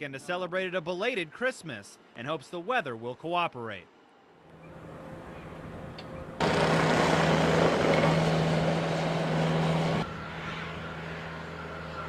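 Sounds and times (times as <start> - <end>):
steady engine hum: 4.5 - 12.0
blizzard wind blowing hard: 4.7 - 12.0.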